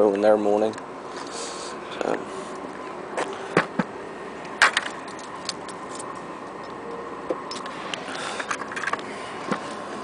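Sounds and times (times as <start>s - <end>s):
footsteps on asphalt: 2.7s - 3.9s.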